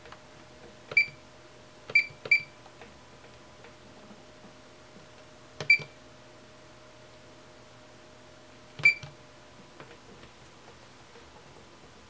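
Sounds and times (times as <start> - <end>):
multimeter short high beeps: 8.8 - 9.0.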